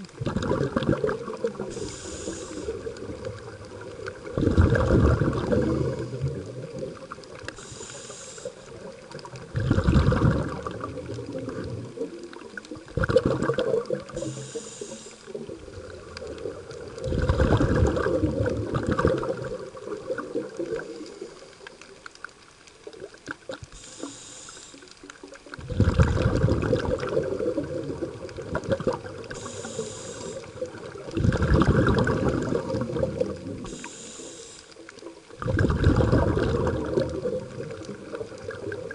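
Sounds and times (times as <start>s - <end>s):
exhaled bubbles rumbling underwater: 0.0s - 38.9s
regulator inhalation hiss: 1.6s - 2.9s, 7.5s - 8.9s, 14.2s - 15.4s, 23.7s - 25.0s, 29.3s - 30.6s, 33.6s - 34.8s.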